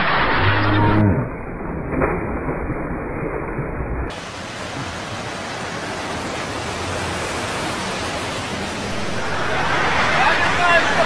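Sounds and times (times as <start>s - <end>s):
steady hiss of noise: 4.1s - 11.0s.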